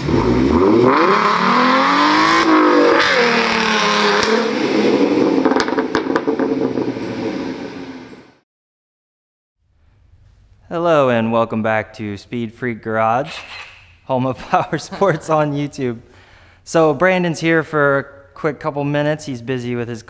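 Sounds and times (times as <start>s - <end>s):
car engine revving hard: 0.0s - 8.2s.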